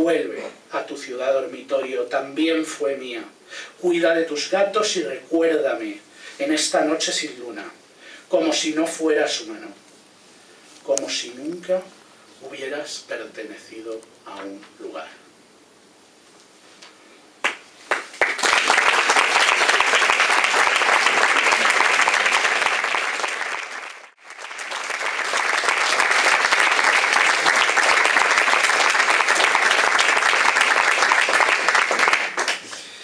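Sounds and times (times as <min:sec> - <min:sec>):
audience applauding: 0:17.4 - 0:32.8.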